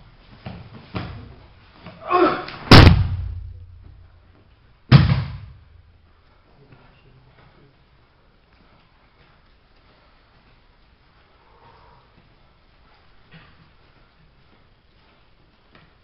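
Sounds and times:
person shouting: 0:02.0 - 0:02.6
body slamming onto mat: 0:02.6 - 0:03.9, 0:04.9 - 0:05.6
heavy thud on mat: 0:02.6 - 0:04.0, 0:04.9 - 0:05.6.

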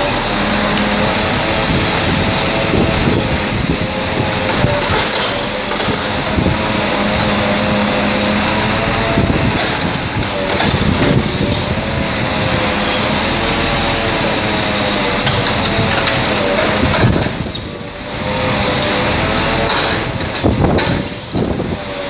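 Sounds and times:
log loader engine whining: 0:00.0 - 0:22.0
wind buffeting microphone: 0:00.0 - 0:22.0.

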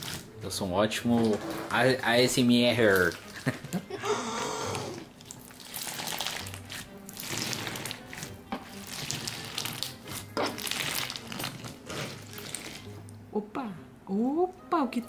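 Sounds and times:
slime with beads squished by hands: 0:05.2 - 0:13.0.

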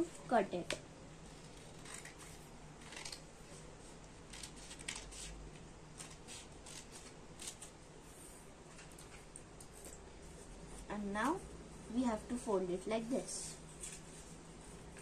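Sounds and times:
scissors snipping paper: 0:01.3 - 0:03.2, 0:04.3 - 0:05.4, 0:06.0 - 0:07.7.

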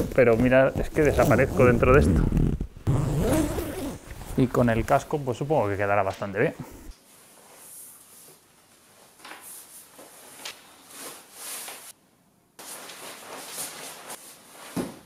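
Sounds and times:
jacket fabric rustling: 0:00.0 - 0:12.0, 0:12.6 - 0:15.0
fabric swishes: 0:12.6 - 0:15.0.

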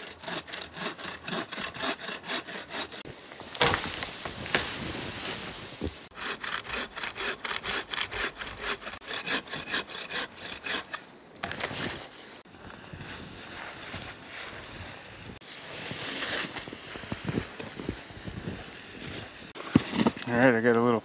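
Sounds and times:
bow saw cutting branch: 0:00.0 - 0:12.1.

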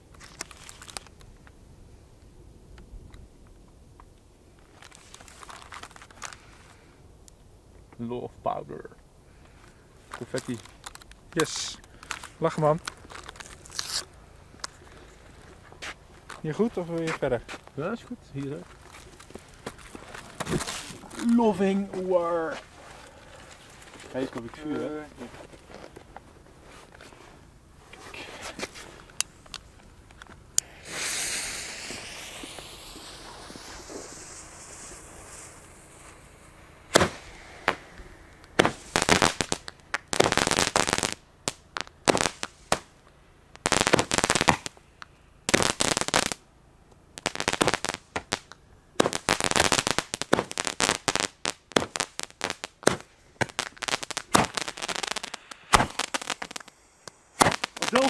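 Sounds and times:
fireworks cake bangs and crackles: 0:10.0 - 0:26.0, 0:28.1 - 0:46.4, 0:47.0 - 0:58.0
lit fuse hissing: 0:10.1 - 0:17.7, 0:28.2 - 0:43.0, 0:47.0 - 0:58.0.

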